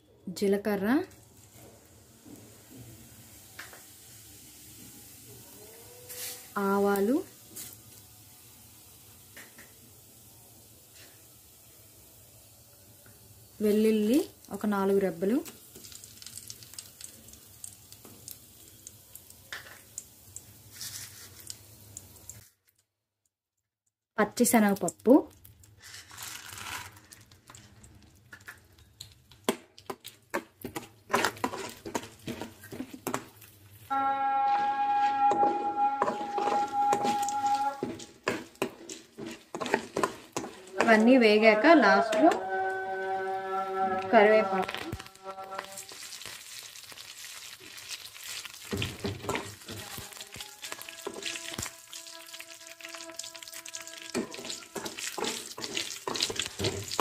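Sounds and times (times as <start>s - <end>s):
lentils sizzling in oil: 0.6s - 22.6s, 24.2s - 57.0s
metal spoon scraping pan: 30.6s - 33.2s, 34.5s - 45.9s, 48.9s - 57.0s.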